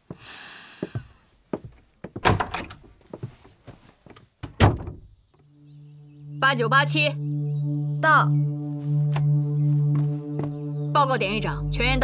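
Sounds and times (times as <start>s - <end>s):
wooden door clunks and knocks: 2.1s - 2.9s, 4.4s - 5.2s.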